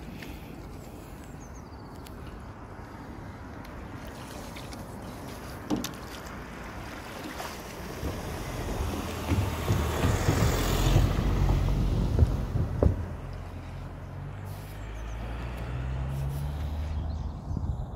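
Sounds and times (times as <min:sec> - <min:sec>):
wind buffeting microphone: 0:07.8 - 0:13.6, 0:16.9 - 0:17.9
sharp knocks: 0:08.1 - 0:13.2.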